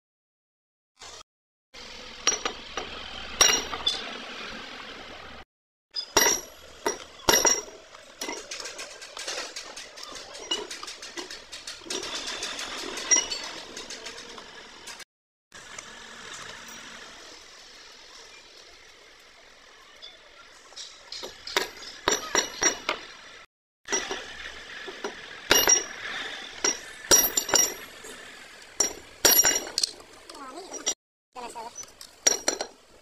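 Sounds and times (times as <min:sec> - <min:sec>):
faint workshop background: 0:01.0 - 0:05.4, 0:06.0 - 0:33.0
hand tools clinking on metal: 0:06.0 - 0:15.0, 0:20.7 - 0:23.1, 0:23.9 - 0:28.2, 0:28.8 - 0:31.0, 0:31.7 - 0:32.8.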